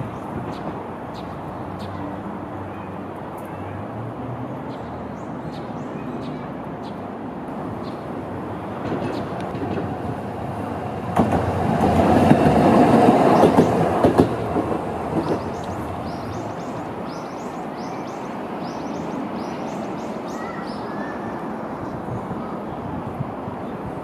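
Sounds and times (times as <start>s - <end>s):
tram running past: 0.0s - 24.0s
wheels clicking over rail joints: 8.8s - 17.2s.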